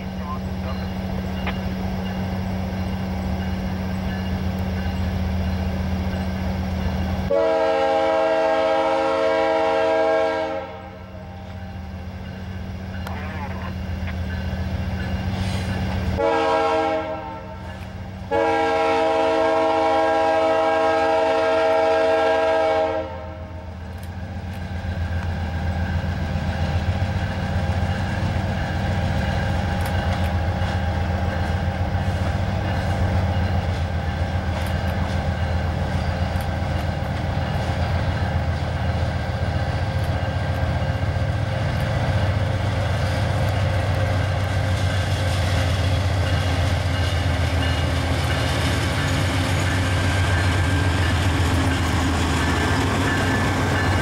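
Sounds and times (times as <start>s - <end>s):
train rumbling: 0.0s - 54.0s
locomotive air horn: 7.3s - 11.3s, 16.2s - 17.7s, 18.3s - 23.7s
wheels clicking on rails: 23.7s - 54.0s.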